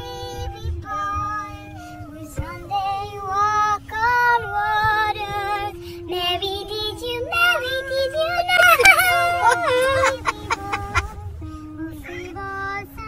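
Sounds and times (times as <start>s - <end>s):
steady low tone: 0.0s - 13.0s
woman singing high-pitched: 0.0s - 13.0s.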